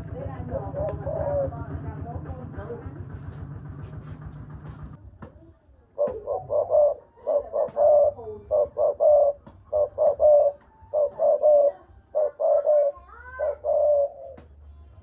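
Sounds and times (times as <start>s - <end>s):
dove cooing: 0.3s - 1.8s, 6.0s - 14.4s.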